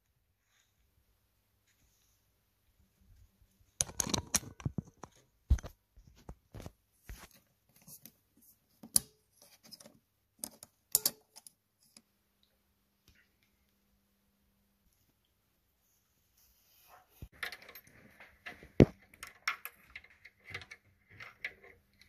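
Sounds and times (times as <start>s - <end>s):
small metal parts clicking and clinking: 10.4s - 12.0s, 17.3s - 22.0s.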